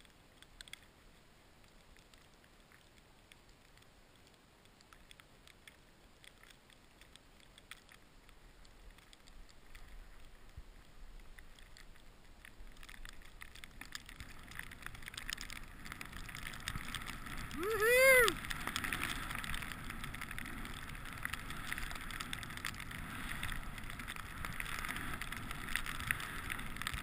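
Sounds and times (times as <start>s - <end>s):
skis hissing through powder snow: 15.6s - 27.0s.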